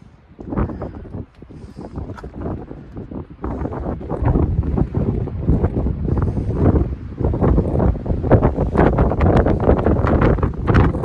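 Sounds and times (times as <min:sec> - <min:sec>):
wind buffeting the microphone: 0:00.0 - 0:11.0.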